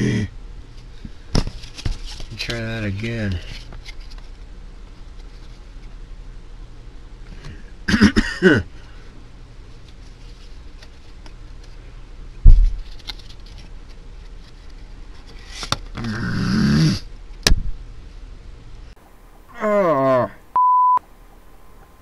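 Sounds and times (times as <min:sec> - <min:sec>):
man groaning: 0:00.0 - 0:00.3, 0:16.0 - 0:17.1, 0:19.5 - 0:20.4.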